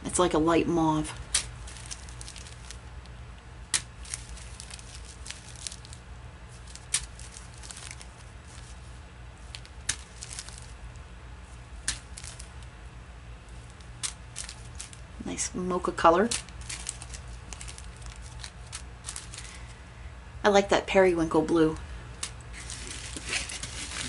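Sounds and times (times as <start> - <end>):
sharp plastic crackles: 1.0 - 12.8, 13.4 - 19.8, 22.1 - 24.0
plastic bags crinkling: 1.1 - 3.1, 3.7 - 12.7, 13.5 - 15.2, 16.2 - 19.7, 22.1 - 24.0.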